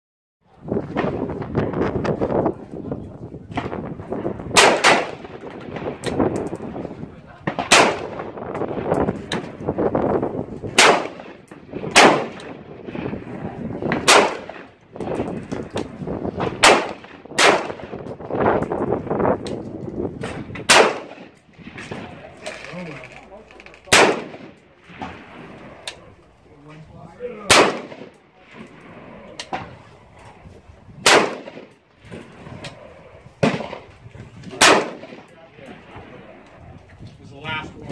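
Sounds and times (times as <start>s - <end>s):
rifle shots echoing: 4.5s - 6.6s, 7.5s - 9.2s, 10.7s - 18.4s, 20.4s - 22.4s, 23.9s - 26.0s, 27.4s - 29.7s, 31.0s - 32.4s, 33.0s - 33.9s, 34.5s - 36.5s.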